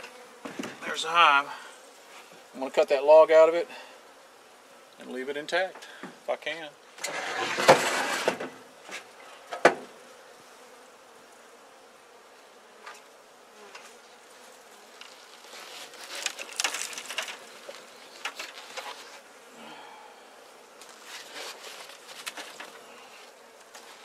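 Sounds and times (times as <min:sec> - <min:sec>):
honeybees buzzing: 0:00.0 - 0:24.0
handling rustle: 0:14.9 - 0:19.3, 0:20.8 - 0:24.0.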